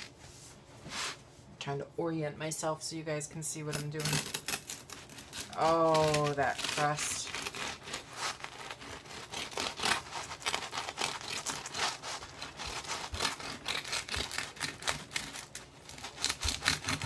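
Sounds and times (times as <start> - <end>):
knife sawing through bread crust: 4.2 - 17.0.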